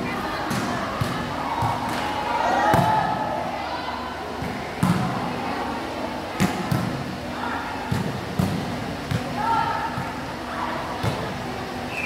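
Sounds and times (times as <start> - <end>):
players' voices: 0.0 - 12.0.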